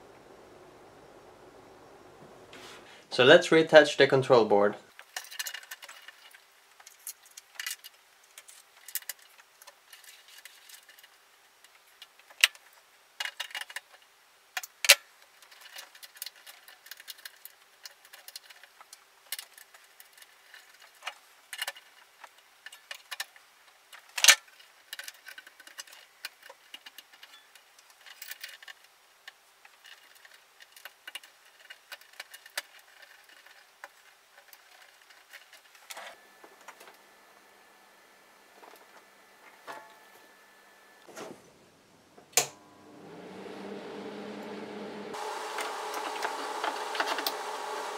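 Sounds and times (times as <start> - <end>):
small clicks and rattles: 4.9 - 36.0.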